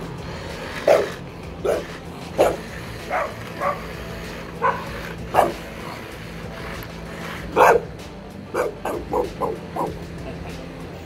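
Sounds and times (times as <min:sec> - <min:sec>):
steady low hum: 0:00.0 - 0:11.0
dog barking: 0:00.9 - 0:03.8, 0:04.6 - 0:05.6, 0:07.5 - 0:07.9, 0:08.6 - 0:10.0.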